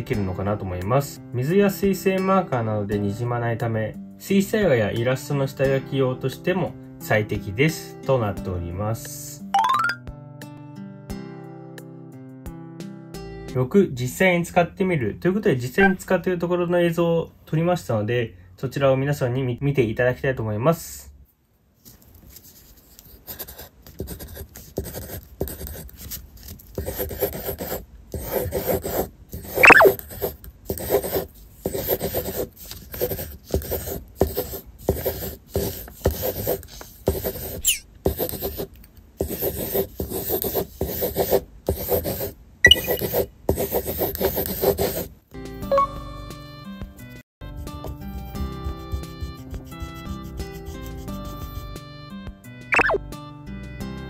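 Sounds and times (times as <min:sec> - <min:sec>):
pencil scratching on paper: 0:22.5 - 0:45.1, 0:48.2 - 0:51.7
pencil squeaks: 0:29.5 - 0:30.3, 0:37.4 - 0:37.9, 0:42.7 - 0:43.2, 0:52.8 - 0:53.0.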